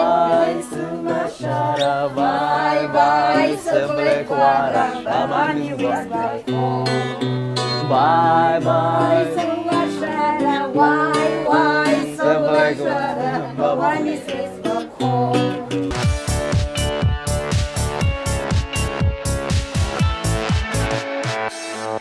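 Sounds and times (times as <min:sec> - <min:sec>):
women singing: 0:00.0 - 0:16.0
acoustic guitar: 0:00.0 - 0:22.0
electronic music with steady beat: 0:15.9 - 0:22.0.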